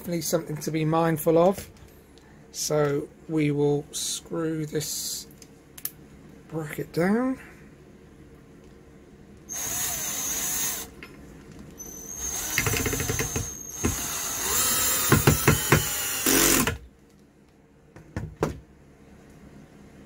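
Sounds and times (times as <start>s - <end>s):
drill-driver whining: 9.5s - 10.9s, 11.8s - 16.8s.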